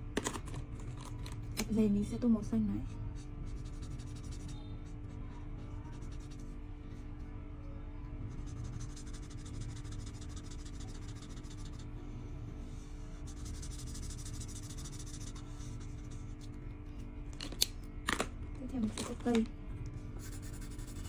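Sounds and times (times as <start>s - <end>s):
low steady hum: 0.0s - 21.0s
marker scratching on paper: 3.1s - 5.2s, 5.9s - 6.5s, 8.3s - 11.8s, 12.7s - 16.6s, 20.2s - 21.0s.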